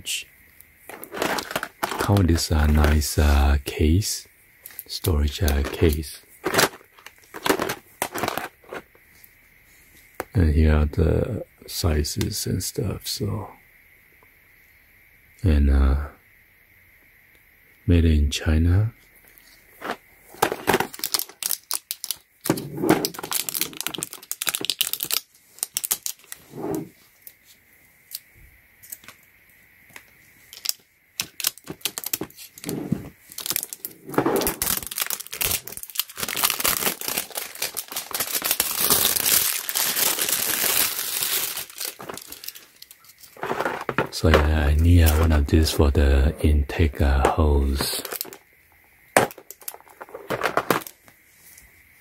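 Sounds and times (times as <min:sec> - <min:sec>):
plastic film crinkling and tearing: 0:00.9 - 0:03.0, 0:05.5 - 0:08.8, 0:19.8 - 0:26.4, 0:30.6 - 0:32.6, 0:33.3 - 0:43.6.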